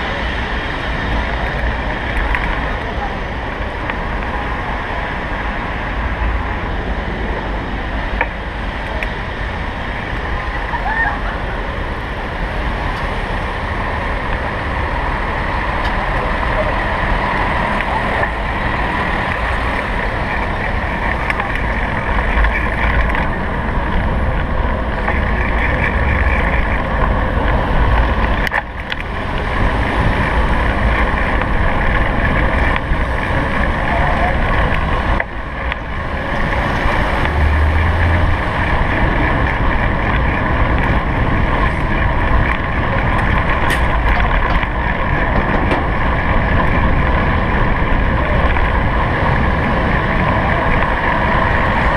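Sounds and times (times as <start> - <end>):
city traffic: 0.0 - 51.9
road rumble: 0.0 - 51.9
wind on microphone: 0.0 - 51.9.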